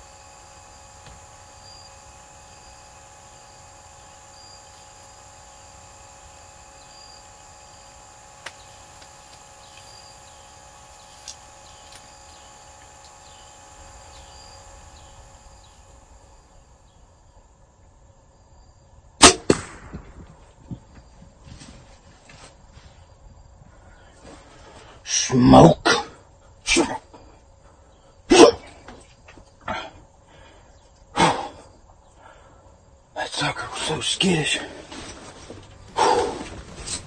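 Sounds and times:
insect chorus: 0.0s - 19.2s, 20.6s - 37.0s
deer running through brush: 34.4s - 37.0s.

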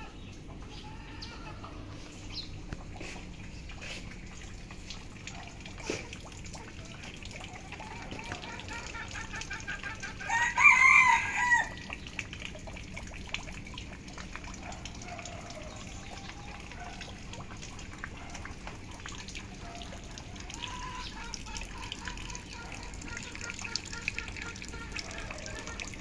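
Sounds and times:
rain with dripping: 0.0s - 26.0s
rooster crowing: 10.2s - 11.8s.

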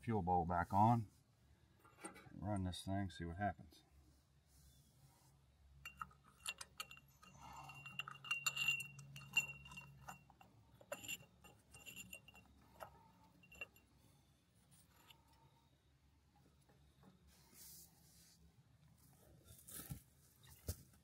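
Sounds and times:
metallic clinks of hand tools: 5.8s - 13.9s.

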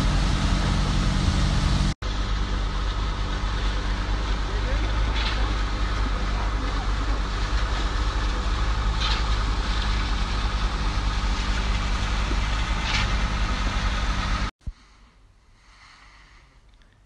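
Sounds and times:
heavy diesel engine humming: 0.0s - 14.5s.

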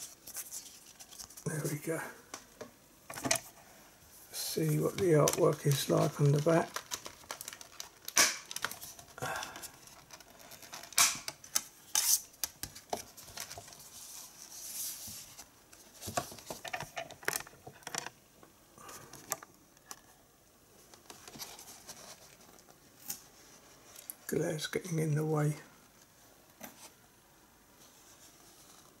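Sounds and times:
rustling: 0.0s - 2.5s, 3.1s - 18.2s, 18.8s - 24.4s.

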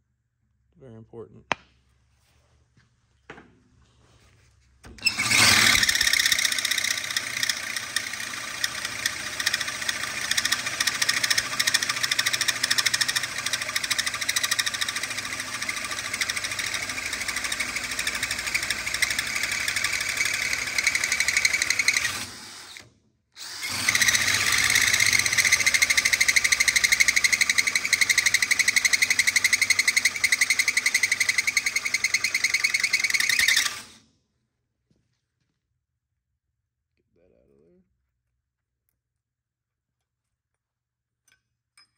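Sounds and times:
hole saw grinding steel tube: 5.0s - 22.8s, 23.4s - 34.0s.

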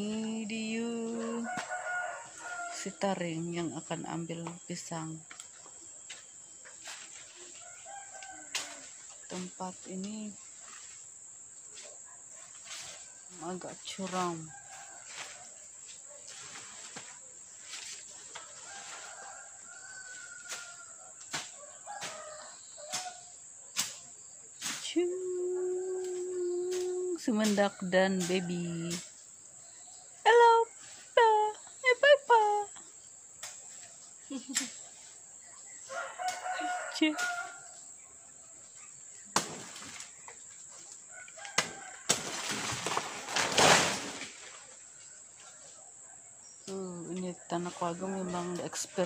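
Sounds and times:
insects buzzing: 0.0s - 49.0s
rustle of leaves and brush: 0.0s - 49.0s
rooster crowing: 1.2s - 3.0s, 7.6s - 9.0s, 18.4s - 23.3s, 35.7s - 37.8s, 41.0s - 42.5s.

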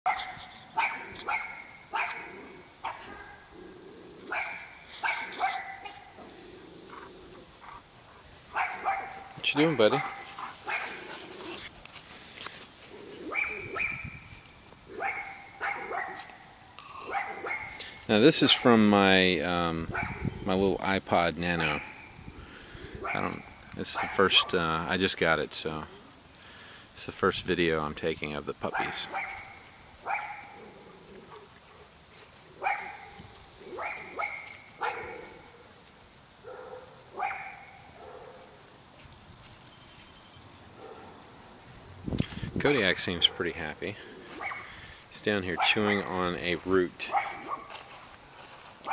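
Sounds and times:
dog barking: 0.1s - 3.4s, 4.3s - 6.1s, 8.5s - 11.1s, 13.3s - 14.2s, 15.0s - 16.4s, 17.1s - 17.8s, 19.9s - 20.4s, 21.6s - 22.1s, 23.0s - 24.6s, 28.7s - 30.6s, 32.6s - 35.6s, 36.4s - 38.4s, 40.8s - 41.2s, 44.4s - 44.7s, 45.6s - 46.2s, 47.1s - 47.8s
puppy yipping: 0.1s - 3.4s, 4.3s - 6.1s, 8.6s - 9.4s, 10.0s - 11.5s, 13.2s - 14.2s, 15.0s - 16.4s, 17.1s - 17.8s, 19.9s - 20.4s, 28.8s - 30.6s, 32.6s - 35.2s, 36.5s - 38.3s, 44.4s - 44.7s, 47.1s - 47.7s.

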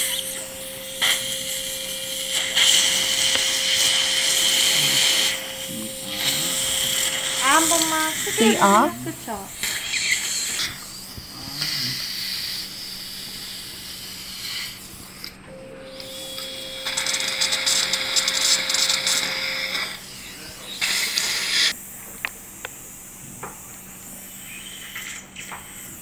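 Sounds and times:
loud hissing: 0.0s - 14.8s
dental drill whine: 0.0s - 21.8s, 23.7s - 26.0s.

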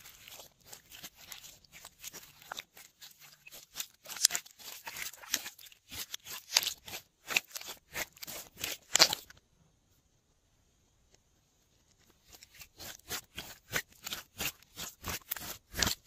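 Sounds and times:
slime crackling and popping: 0.0s - 9.3s.

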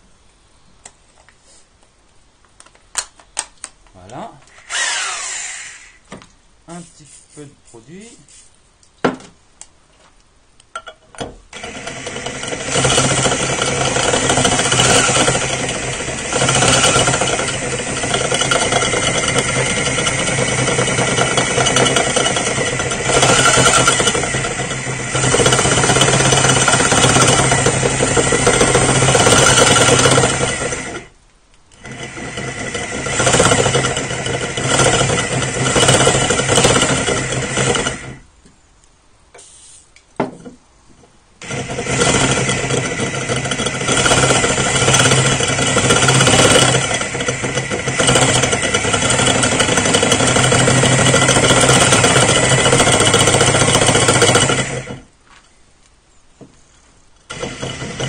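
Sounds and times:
electric drill drilling ceramic: 4.5s - 6.0s, 11.5s - 31.1s, 31.8s - 38.2s, 41.4s - 55.1s, 57.3s - 58.0s.

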